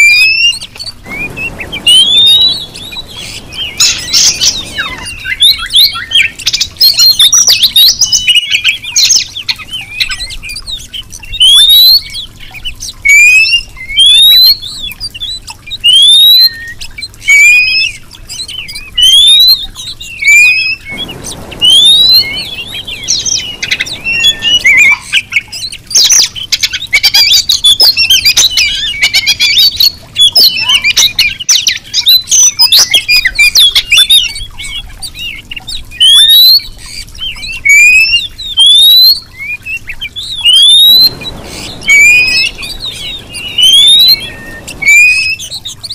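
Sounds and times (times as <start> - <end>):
bird chattering twitter: 0.0 - 45.9
bird rising whistles: 0.0 - 45.9
brief rushing noise: 1.0 - 5.2, 20.9 - 25.2, 41.0 - 45.7.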